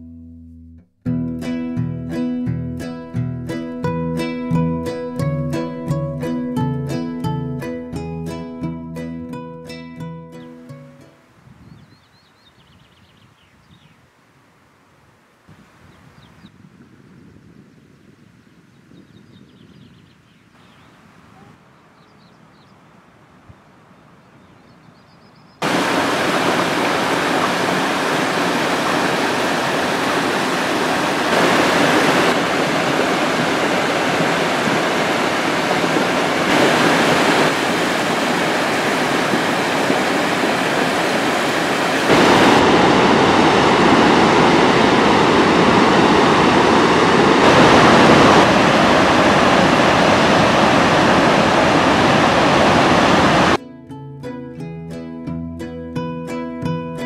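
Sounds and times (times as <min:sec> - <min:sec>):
whitewater rushing: 0:25.6 - 0:53.6.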